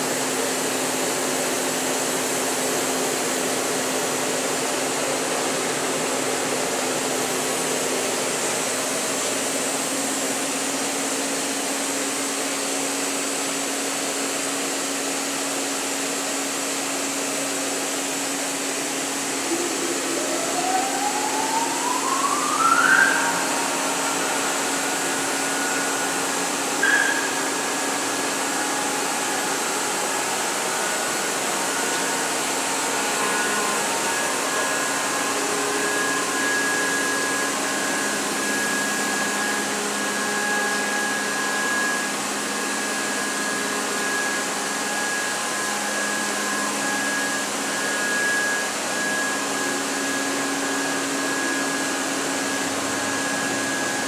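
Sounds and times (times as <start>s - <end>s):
high machine whine: 0.0s - 54.0s
machine whirring hum: 0.0s - 54.0s.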